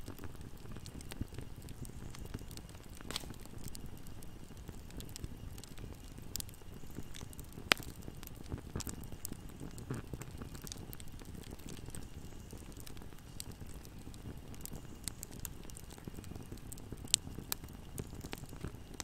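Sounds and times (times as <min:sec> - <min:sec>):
fire crackling: 0:00.0 - 0:19.0
fire flames rumbling: 0:00.0 - 0:19.0.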